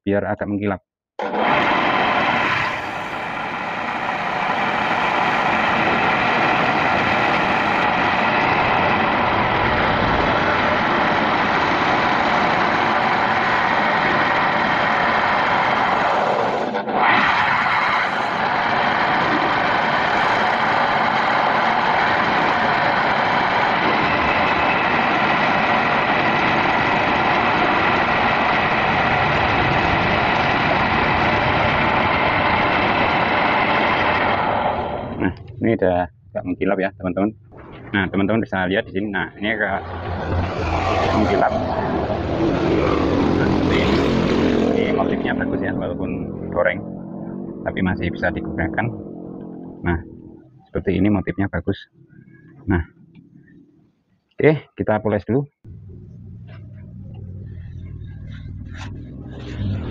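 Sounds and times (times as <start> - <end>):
wood lathe running: 1.2 - 35.1
shavings burnishing spinning bowl: 1.2 - 35.4, 38.6 - 49.0.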